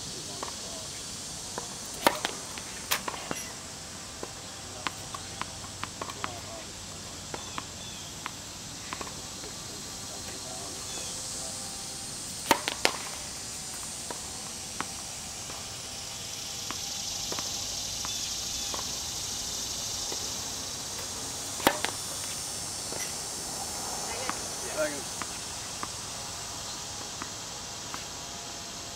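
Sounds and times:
tennis ball taps: 1.5 - 3.5, 4.2 - 6.5, 7.3 - 9.2, 12.5 - 15.7, 20.0 - 26.0
racket striking tennis ball: 1.5 - 3.6, 12.3 - 26.0.

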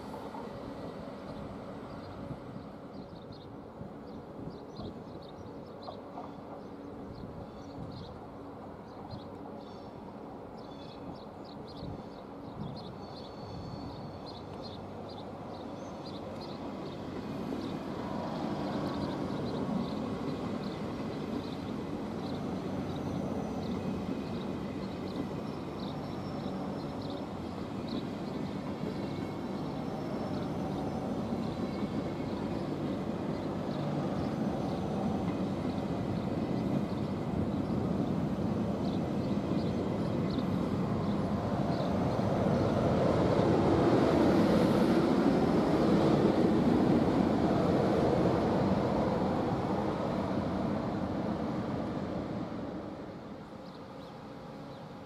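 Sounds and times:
train wheels rumbling on rails: 0.0 - 8.0
faint light ticks: 14.4 - 14.7.

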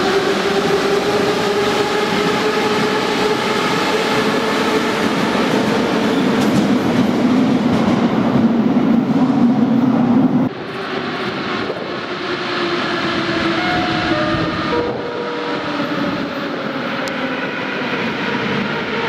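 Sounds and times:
train wheel and running noise: 0.0 - 8.5
approaching train whining: 0.0 - 19.0
tunnel rumble: 0.0 - 19.0.

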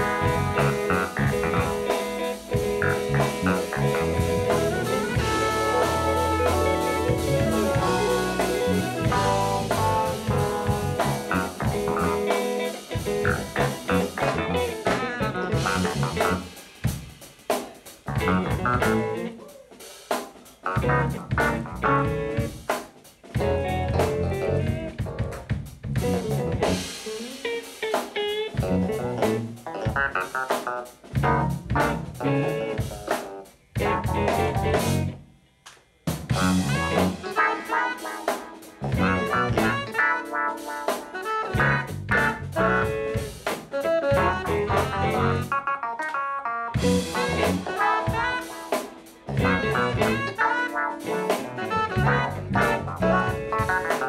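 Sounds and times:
jazz-funk band playing: 0.0 - 35.2, 36.1 - 54.0.

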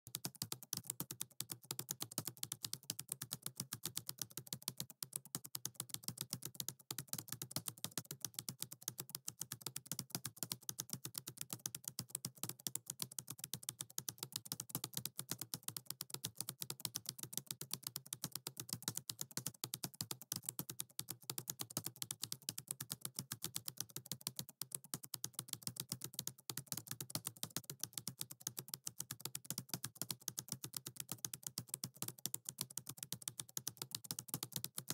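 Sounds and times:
computer keyboard typing: 0.1 - 34.9.

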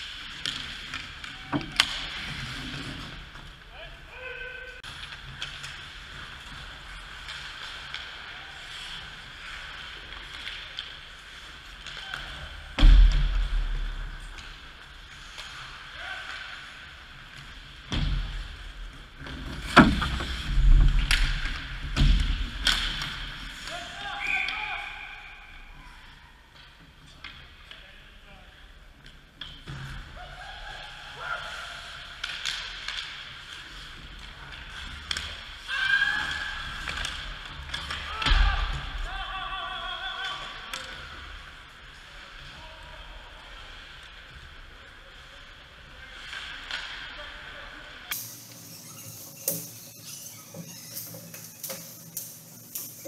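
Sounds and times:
hockey sticks clicking: 0.0 - 2.4, 32.0 - 38.7, 48.1 - 53.0
hockey sticks and puck clacking: 0.0 - 3.7, 4.8 - 25.0, 31.9 - 39.1, 40.2 - 42.1, 45.5 - 47.2, 48.1 - 53.0
steady rink hum: 0.0 - 53.0.

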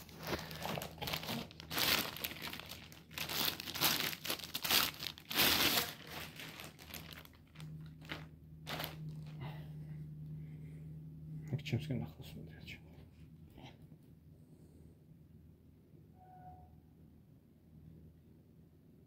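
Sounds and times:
plastic wrapping crinkling: 0.0 - 9.5.

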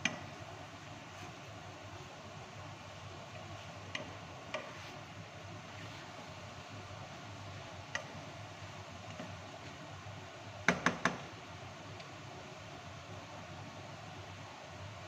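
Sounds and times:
spatula stirring food in a pan: 0.0 - 14.8
spatula tapping a pan: 3.9 - 4.8, 10.6 - 11.3.

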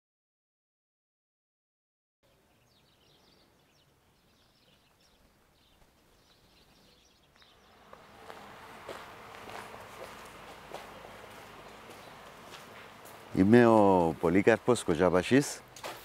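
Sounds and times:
faint birds chirping: 2.2 - 15.8
footsteps on concrete floor: 5.1 - 14.3, 15.8 - 16.0.

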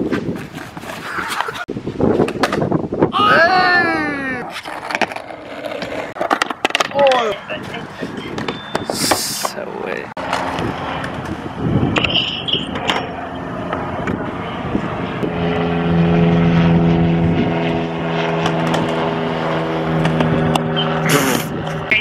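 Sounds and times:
constant rushing noise: 4.3 - 22.0
engine drone: 7.4 - 22.0.

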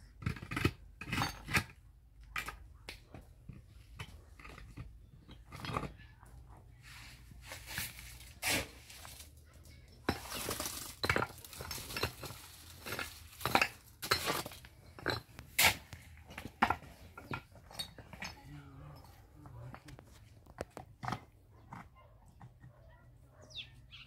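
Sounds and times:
stones knocking on concrete blocks: 0.2 - 6.5, 9.0 - 22.8
shovel scraping concrete mix: 6.8 - 9.4, 10.0 - 21.4.

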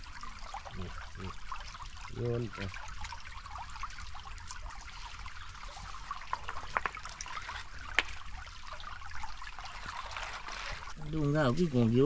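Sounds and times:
small water splashes: 0.0 - 12.0
stream trickling over stones: 0.0 - 12.0
hands clicking stones underwater: 6.4 - 8.2.

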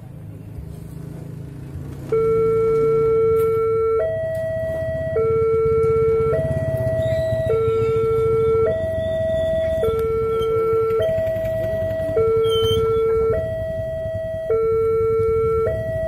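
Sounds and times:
level crossing two-tone alarm: 2.1 - 16.0.

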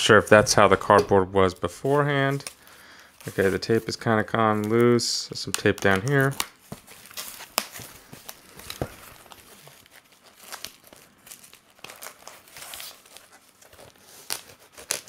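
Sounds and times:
packaging crinkling and scraping: 3.2 - 15.0
packing tape tearing: 5.4 - 15.0.

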